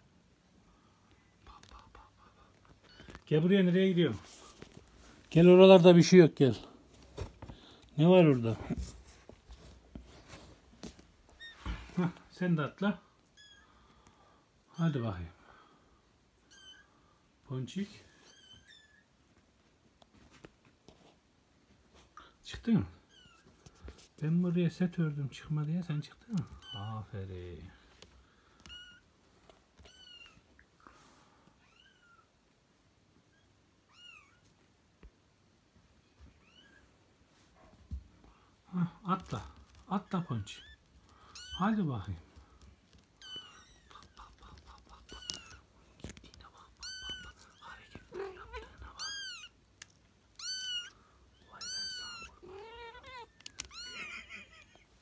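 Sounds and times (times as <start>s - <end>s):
kittens mewing: 39.2s - 49.6s, 50.3s - 55.0s.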